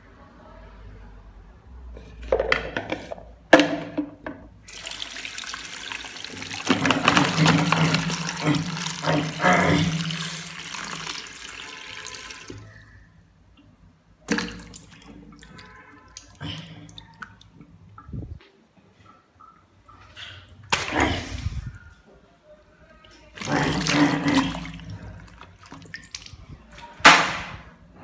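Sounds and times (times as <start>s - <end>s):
tap water splashing into bowl: 3.6s - 12.7s, 14.2s - 18.1s
hand rubbing apple in water: 23.4s - 26.6s.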